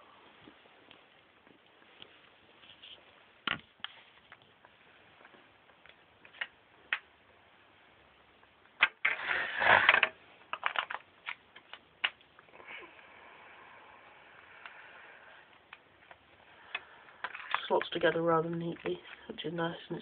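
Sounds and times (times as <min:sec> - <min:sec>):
plastic toy parts clicking: 0:08.8 - 0:12.2.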